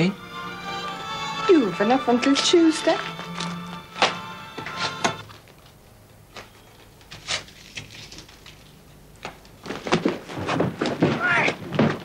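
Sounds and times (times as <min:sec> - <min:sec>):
background music: 0:00.0 - 0:05.2.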